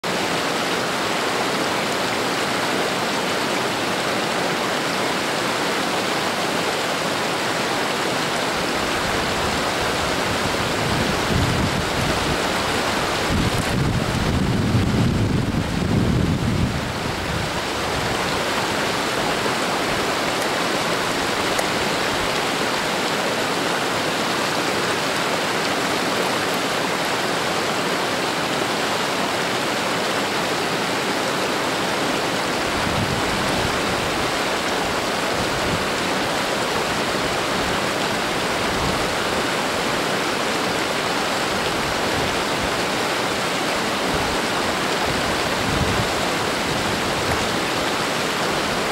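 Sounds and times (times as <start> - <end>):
creek flowing over stones: 0.0 - 48.9
wind buffeting microphone: 9.0 - 18.6, 32.6 - 34.4, 45.0 - 47.6.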